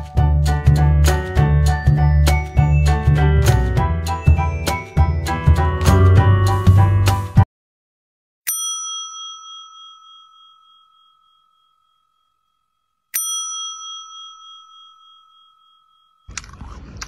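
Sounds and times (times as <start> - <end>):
service bell ding: 8.5 - 12.2, 13.2 - 16.3.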